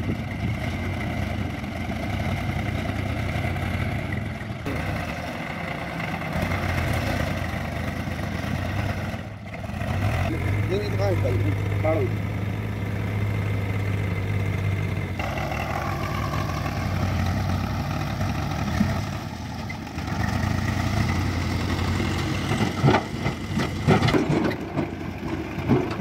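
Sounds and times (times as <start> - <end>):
tractor diesel engine running: 0.0 - 26.0
knocks and clatters: 22.3 - 26.0.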